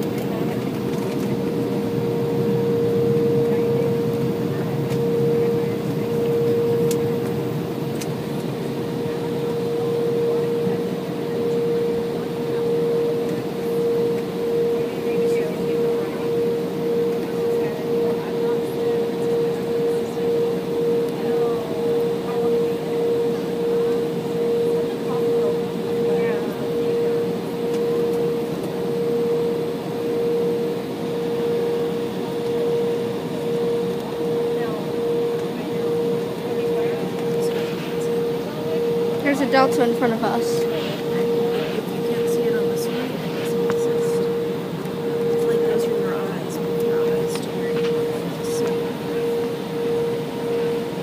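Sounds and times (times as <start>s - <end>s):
jet engines rumbling: 0.0s - 51.0s
mid-pitched cabin hum: 0.0s - 51.0s.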